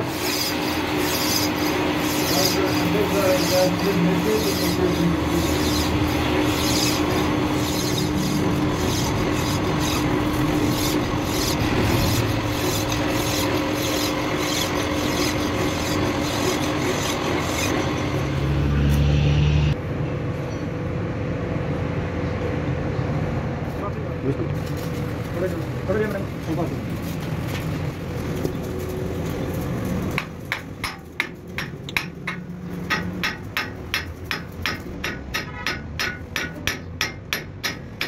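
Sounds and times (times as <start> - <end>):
metal scraping rumble: 0.1 - 18.9.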